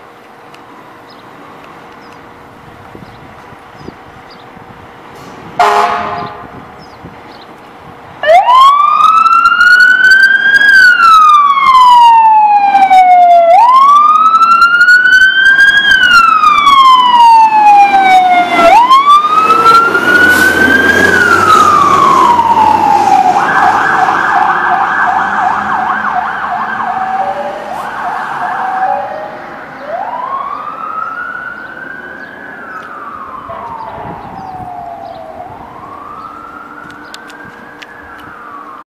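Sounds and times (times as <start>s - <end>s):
fire engine siren wailing: 5.6s - 6.6s, 8.2s - 38.9s
siren fast yelp: 8.2s - 38.8s.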